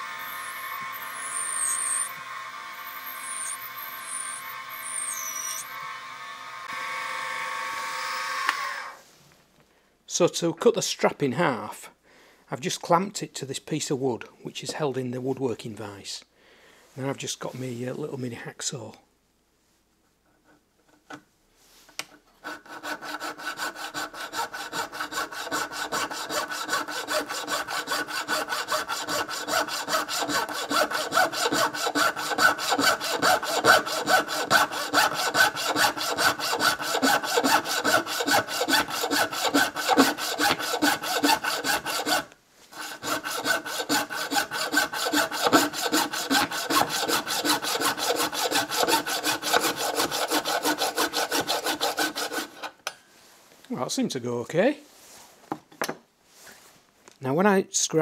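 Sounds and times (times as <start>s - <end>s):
hacksaw cutting metal: 0.0s - 5.8s, 22.4s - 53.0s.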